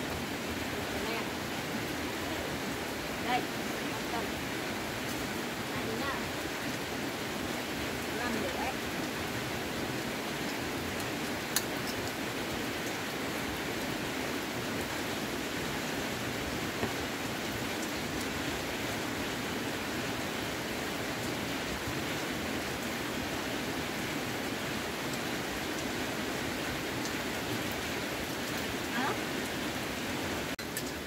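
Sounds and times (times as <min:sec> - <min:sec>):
rain hiss: 0:00.0 - 0:31.0.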